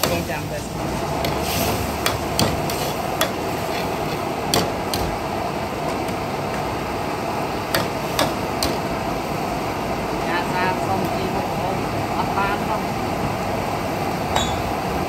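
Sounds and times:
gas burner rushing: 0.0 - 15.0
metal ladle scraping a wok: 1.0 - 5.0.

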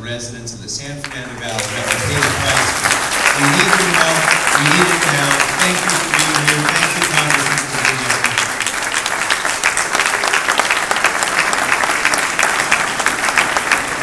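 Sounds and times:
audience applauding: 1.0 - 14.0.

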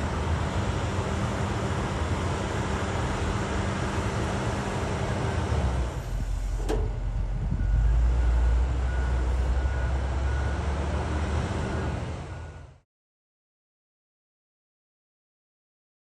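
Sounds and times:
diesel engine droning: 0.0 - 12.8.

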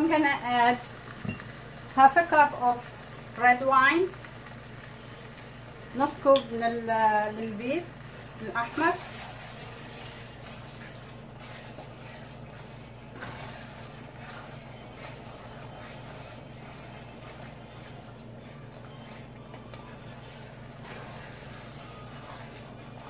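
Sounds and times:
wine hissing and bubbling in pot: 0.0 - 23.0
wooden spoon scraping pot: 8.4 - 23.0.

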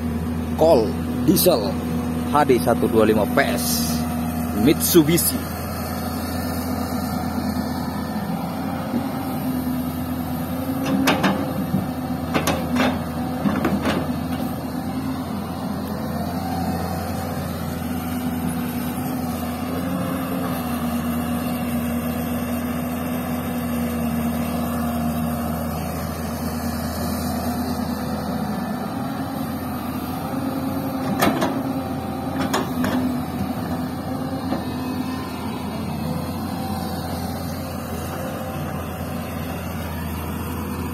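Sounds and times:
dump truck idling: 0.0 - 40.9
excavator diesel engine: 0.0 - 40.9.

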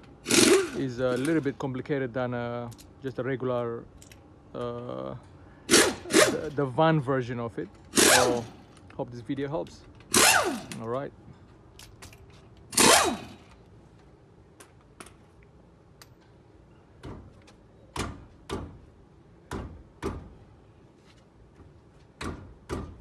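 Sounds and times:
impact wrench whirring: 0.2 - 1.2, 5.7 - 6.5, 7.9 - 8.6, 10.1 - 10.8, 12.7 - 13.4.

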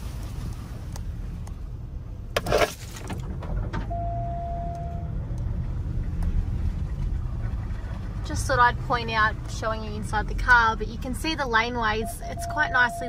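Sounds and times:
car engine and tyres rumbling: 0.0 - 13.0
steady beep: 3.9 - 5.1, 11.9 - 13.0.

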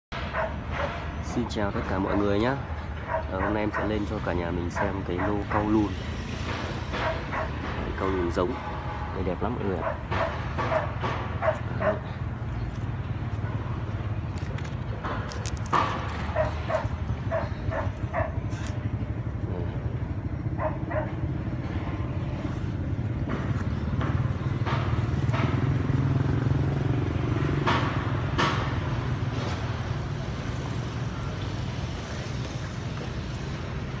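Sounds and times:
dog barking: 0.3 - 1.0, 3.0 - 4.1, 4.7 - 5.8, 7.0 - 7.6, 9.8 - 12.2, 16.3 - 18.4, 20.6 - 21.3
low engine hum: 0.3 - 34.0.

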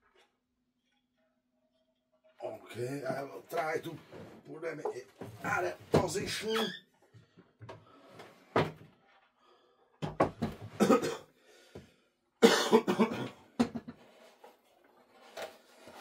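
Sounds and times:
man coughing: 10.8 - 11.3, 12.4 - 13.4.

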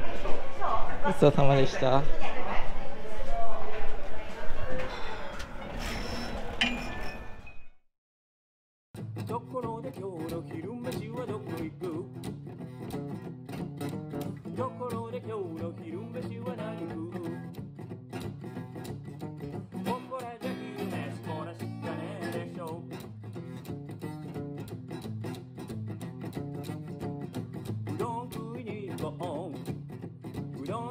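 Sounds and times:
strummed acoustic guitar: 9.0 - 30.9
person singing: 9.3 - 12.2, 14.5 - 17.5, 19.9 - 22.9, 28.0 - 29.6, 30.6 - 30.9.

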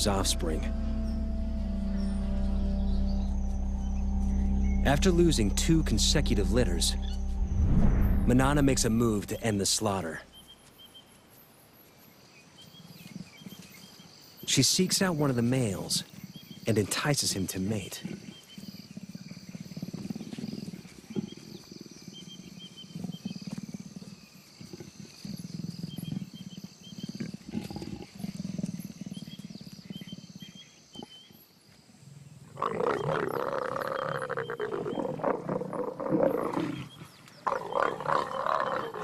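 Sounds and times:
crickets chirping: 0.0 - 10.4, 18.2 - 39.0
leopards growling: 17.9 - 31.3, 32.5 - 39.0
harsh snarling growl: 32.6 - 39.0.

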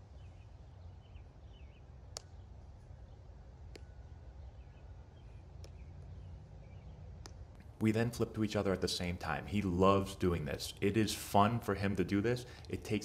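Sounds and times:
faint bird chirps: 0.0 - 7.5
low outdoor rumble: 0.0 - 13.0
soft clicks: 2.1 - 2.4, 3.6 - 4.0, 5.5 - 6.1, 7.1 - 7.7.

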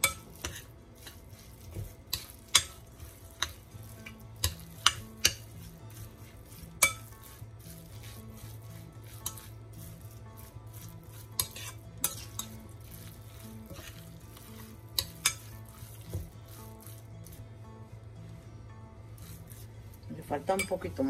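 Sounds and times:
spoon stirring wet mixture: 0.0 - 17.5, 19.2 - 21.0
faint background music: 0.0 - 21.0
spoon clinking against bowl: 6.8 - 7.1.

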